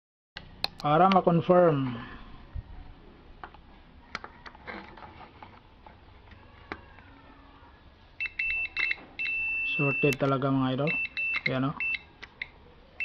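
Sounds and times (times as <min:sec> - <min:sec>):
multimeter continuity beeps: 0:08.2 - 0:12.6.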